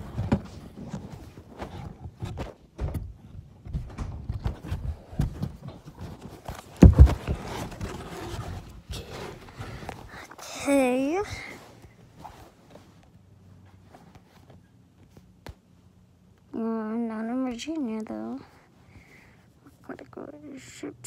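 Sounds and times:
heavy thumps: 0.0s - 10.1s
knocking and scraping on cardboard: 3.7s - 10.0s.

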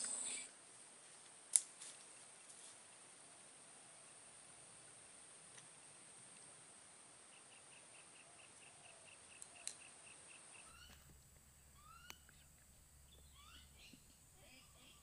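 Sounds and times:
faint bird chirps: 7.2s - 15.0s.

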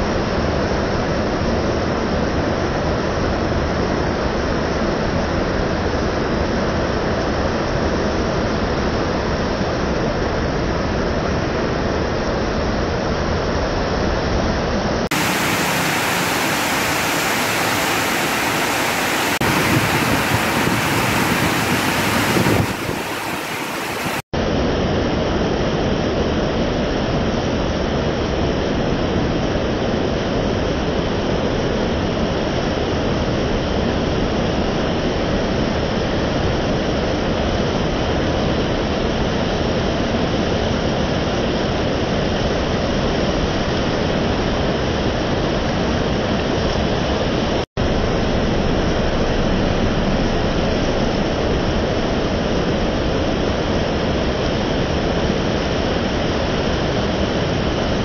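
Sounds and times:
heavy rain pouring: 15.1s - 24.2s.

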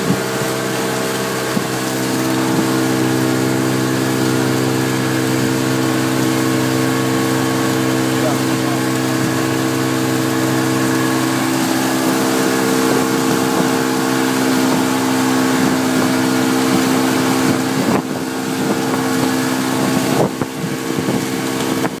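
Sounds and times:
motorboat engine running: 0.0s - 22.0s
water rushing: 0.0s - 22.0s
heavy wind: 8.4s - 22.0s.

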